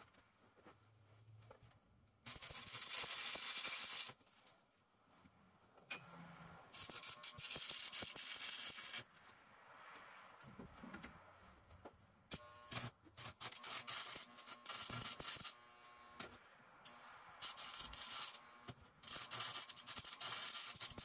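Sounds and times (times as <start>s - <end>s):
welding arc hissing: 2.3s - 4.2s, 6.7s - 9.1s, 12.3s - 15.6s, 17.4s - 18.4s, 19.0s - 21.0s.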